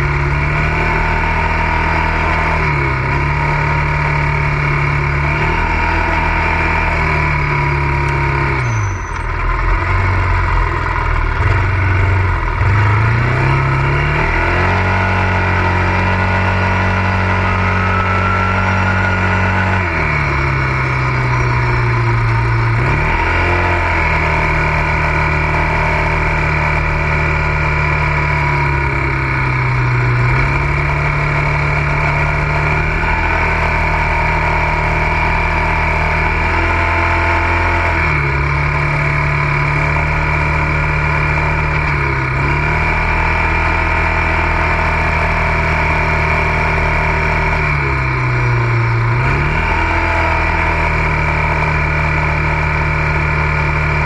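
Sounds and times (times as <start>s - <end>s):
atv engine revving: 0.0s - 54.0s.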